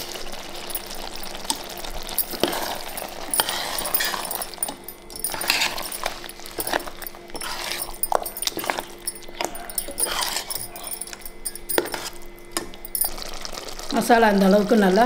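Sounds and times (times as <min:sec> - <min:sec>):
faint hum: 0:00.0 - 0:15.0
metal ladle scraping a pot: 0:02.2 - 0:12.3.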